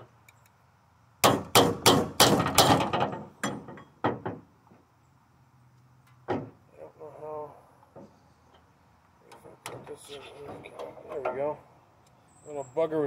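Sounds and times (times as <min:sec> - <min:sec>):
metallic clanking and banging: 0:01.2 - 0:04.5.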